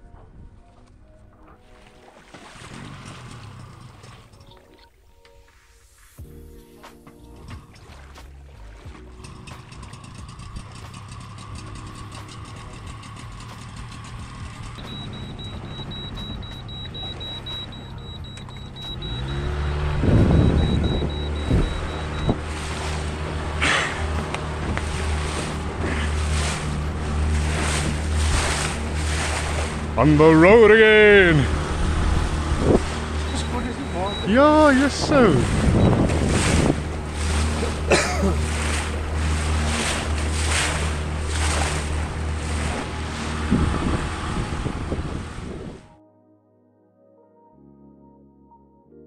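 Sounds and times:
water splashing along hull: 0.0s - 45.9s
motorboat engine humming: 0.0s - 46.0s
wind buffeting microphone: 13.6s - 45.9s.

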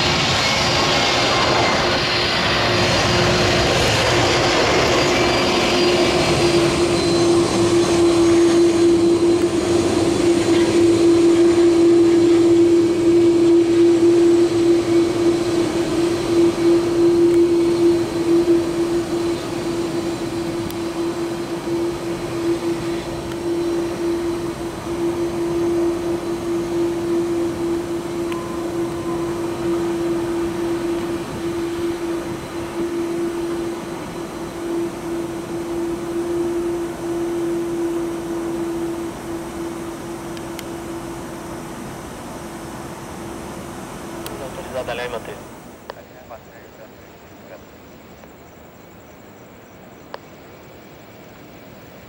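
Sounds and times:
jet engines droning: 0.0s - 52.0s.

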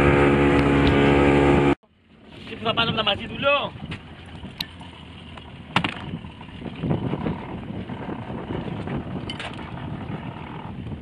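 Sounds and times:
water slapping boat: 0.0s - 11.0s
wind buffeting microphone: 2.4s - 11.0s.

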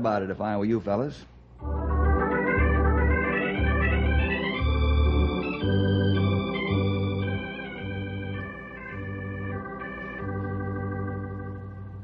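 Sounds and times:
organ music: 1.6s - 12.0s.

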